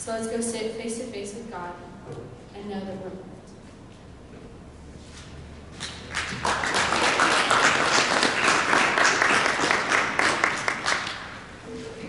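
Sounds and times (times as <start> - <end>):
audience applauding: 5.9 - 11.4.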